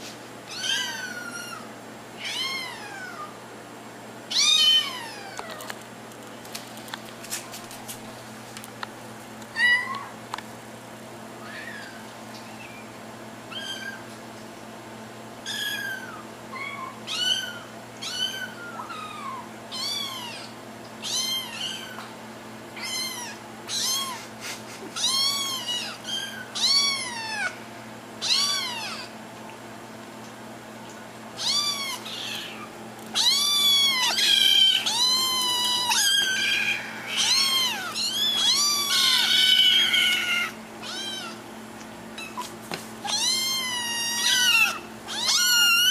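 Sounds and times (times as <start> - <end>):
kittens meowing: 0.5 - 3.3, 4.3 - 5.7, 9.6 - 10.2, 11.4 - 12.8, 13.5 - 14.0, 15.5 - 22.1, 22.8 - 24.2, 25.0 - 27.6, 28.2 - 29.2, 31.4 - 41.4, 42.2 - 45.9.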